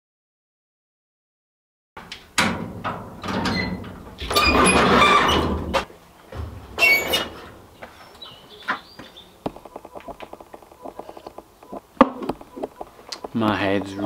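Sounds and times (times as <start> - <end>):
garage door clunk: 2.0 - 8.0
garage door rattling rumble: 2.3 - 8.0
high metal squeal: 3.4 - 5.8, 6.6 - 7.8.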